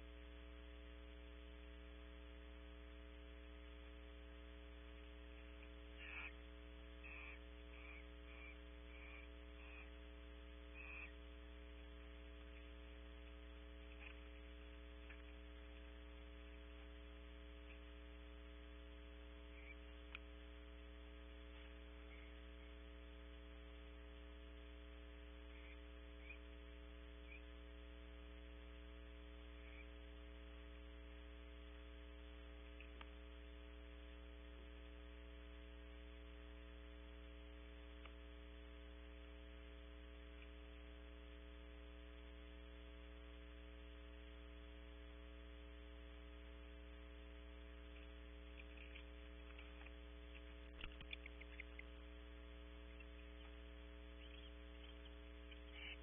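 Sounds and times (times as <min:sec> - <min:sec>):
faint electrical hum: 0:00.0 - 0:56.0
soft ticks: 0:19.6 - 0:20.3, 0:47.9 - 0:52.0.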